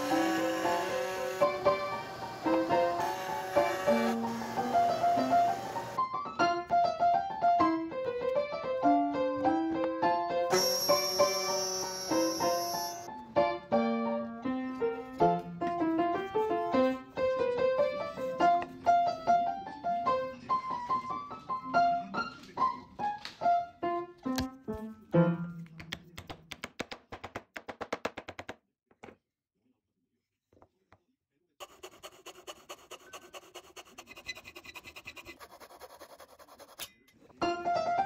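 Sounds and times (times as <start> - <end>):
slow piano melody: 0.0 - 22.0.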